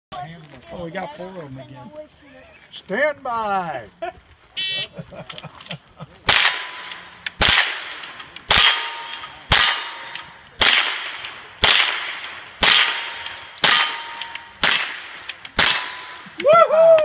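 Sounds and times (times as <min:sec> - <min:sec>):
gunshots: 0:06.2 - 0:16.4
steel target ringing: 0:08.5 - 0:10.4, 0:12.7 - 0:15.0, 0:15.6 - 0:16.4.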